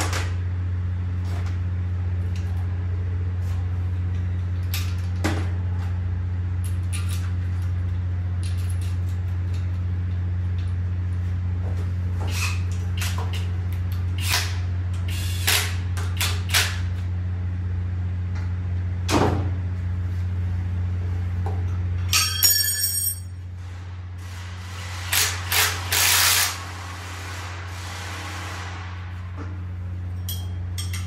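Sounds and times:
low hum: 16.2s - 31.0s
short harsh bursts: 23.7s - 29.3s
tools clicking on metal: 30.2s - 31.0s.

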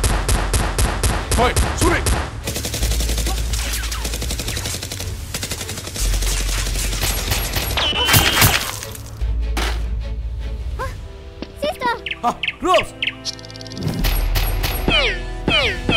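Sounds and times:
automatic gunfire effects: 0.0s - 8.7s.

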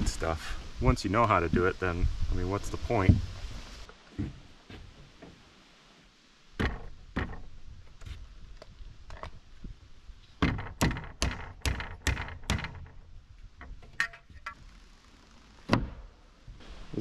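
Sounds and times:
sharp knocks on wood framing: 4.2s - 5.4s, 6.6s - 7.5s, 10.4s - 13.0s, 15.7s - 16.1s.

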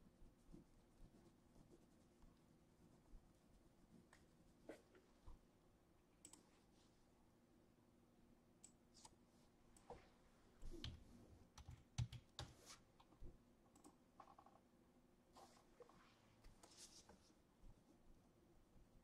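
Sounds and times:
faint clicks: 6.2s - 6.4s.

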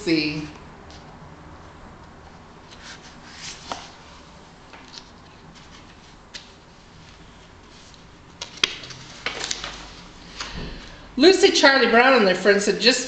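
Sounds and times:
book pages turning: 2.0s - 10.1s.

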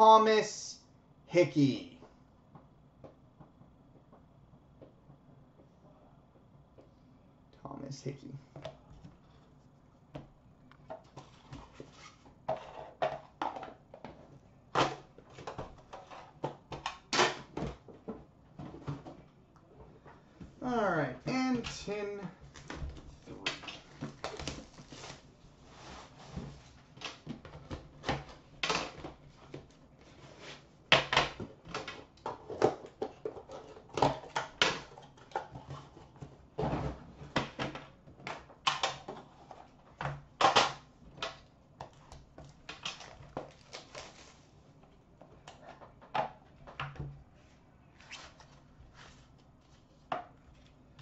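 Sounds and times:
plastic wrap crinkling: 23.7s - 26.2s, 42.8s - 44.5s.

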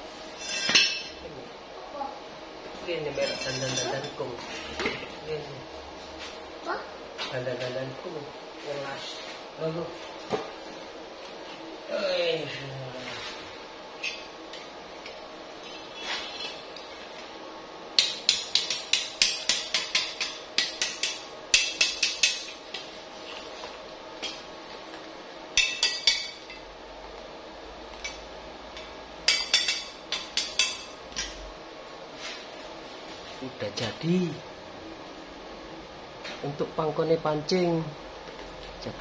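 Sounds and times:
rapid metal-on-metal tapping: 18.0s - 22.6s.

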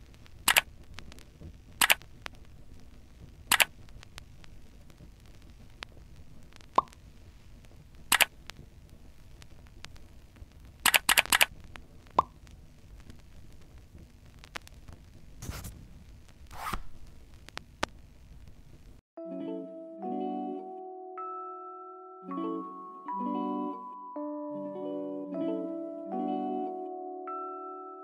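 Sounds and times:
faint steady hiss: 0.0s - 19.0s
rustling: 0.0s - 19.0s
sharp clicks and taps: 0.5s - 2.4s, 3.5s - 4.3s, 8.1s - 8.6s, 10.8s - 11.5s.

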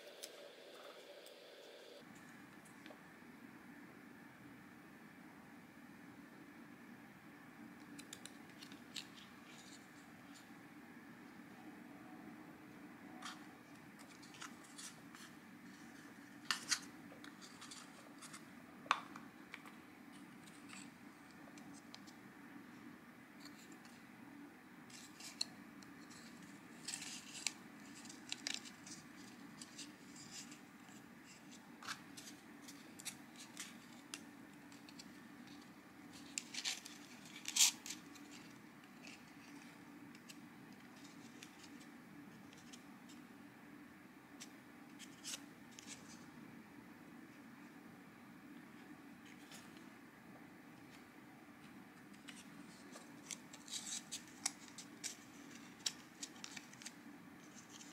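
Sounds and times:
faint steady hum: 0.0s - 57.9s
card scraping and clicking: 24.9s - 41.9s, 52.1s - 57.9s.

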